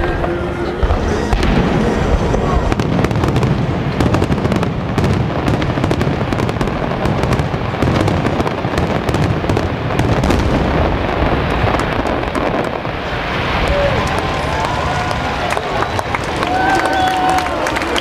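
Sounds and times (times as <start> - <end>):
low rumble: 0.0 - 8.7
fireworks bursting: 0.0 - 18.0.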